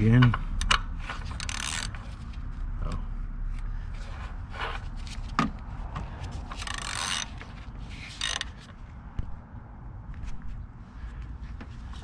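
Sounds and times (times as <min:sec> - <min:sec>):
ratchet wrench clicking: 0:00.6 - 0:02.0, 0:06.6 - 0:07.4, 0:08.0 - 0:08.7.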